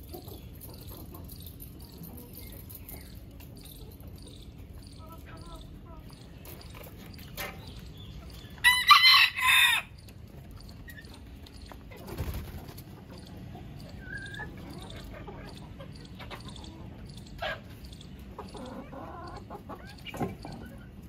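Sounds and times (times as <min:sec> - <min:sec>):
chickens clucking and peeping: 0:00.0 - 0:21.0
rooster crowing: 0:08.6 - 0:09.9.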